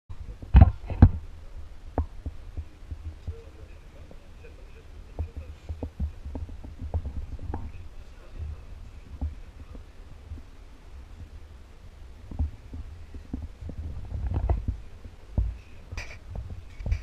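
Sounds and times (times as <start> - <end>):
low thumps and knocks: 0.1 - 17.0
steady low hum: 0.1 - 17.0.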